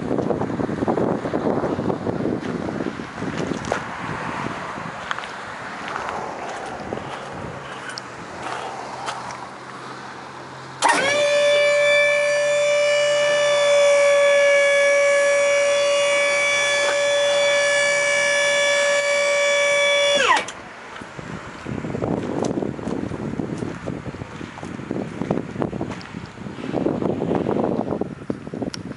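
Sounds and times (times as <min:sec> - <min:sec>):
hydraulic pump whining: 0:10.8 - 0:20.6.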